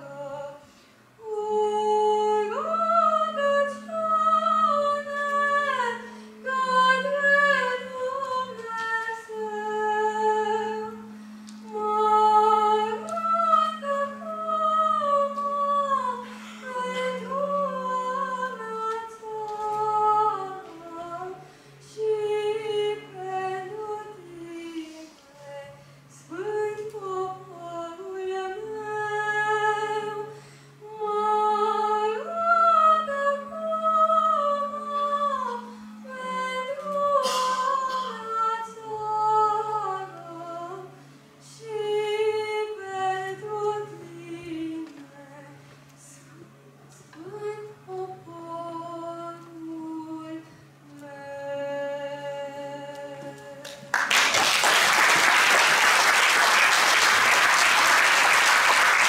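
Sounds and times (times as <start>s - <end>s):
boy singing into a microphone: 31.0s - 40.6s
audience applause: 53.9s - 59.0s.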